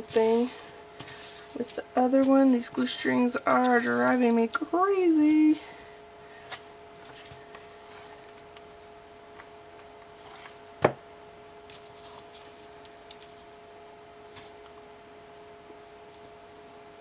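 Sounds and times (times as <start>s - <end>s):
ribbon rustling: 0.0s - 5.5s
faint steady hum: 0.0s - 17.0s.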